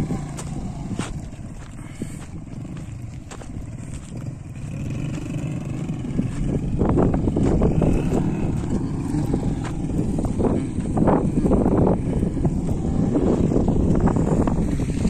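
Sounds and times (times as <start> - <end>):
vehicle driving: 0.0 - 15.0.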